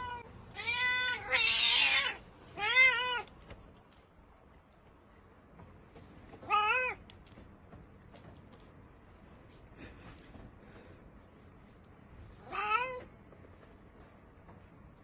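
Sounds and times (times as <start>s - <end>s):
cat meowing: 0.0s - 3.3s, 6.4s - 7.0s, 12.4s - 13.1s.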